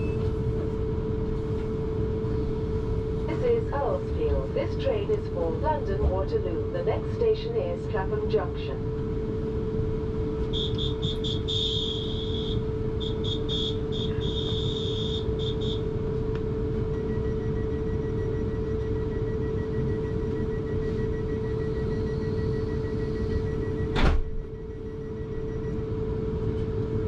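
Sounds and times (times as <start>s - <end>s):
electric train humming: 0.0s - 27.0s
door warning beeps: 10.4s - 15.9s, 16.9s - 26.0s.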